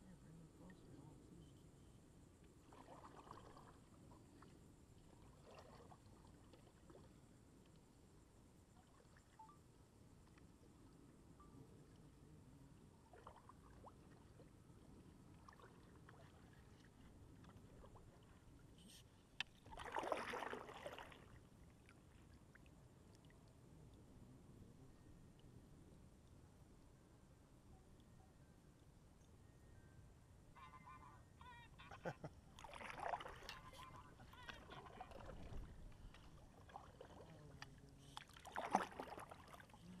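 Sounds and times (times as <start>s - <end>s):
faint water sound: 0.0s - 40.0s
water splash: 19.6s - 21.4s, 32.6s - 39.8s.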